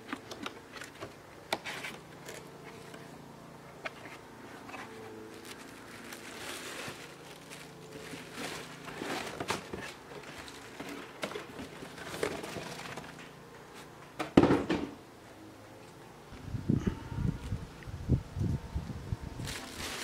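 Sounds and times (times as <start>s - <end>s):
cardboard box scraping: 3.9s - 11.0s
plastic wrapping rustling: 3.9s - 13.2s, 19.4s - 20.0s.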